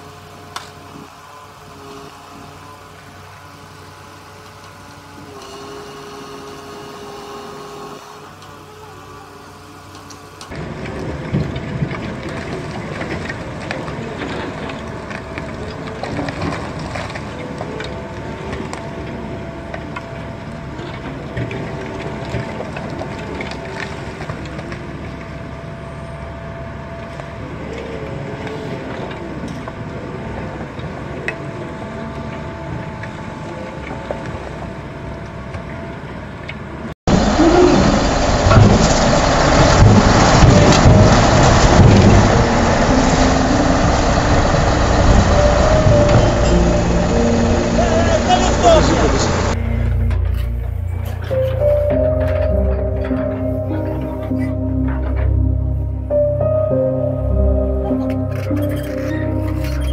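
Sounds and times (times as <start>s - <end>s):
crane truck engine running: 0.0s - 56.2s
excavator engine and hydraulics: 0.0s - 59.9s
masonry cracking and falling: 10.5s - 18.8s, 37.1s - 43.4s.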